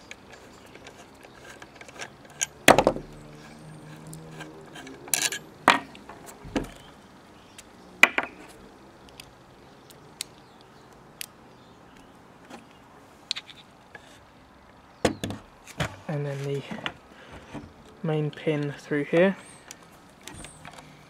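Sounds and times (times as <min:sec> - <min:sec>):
metal clinks on wooden table: 0:05.1 - 0:05.9.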